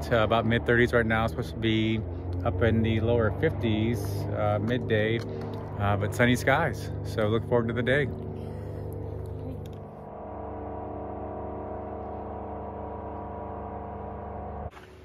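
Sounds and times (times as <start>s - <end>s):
music of sustained chords: 0.0s - 14.9s.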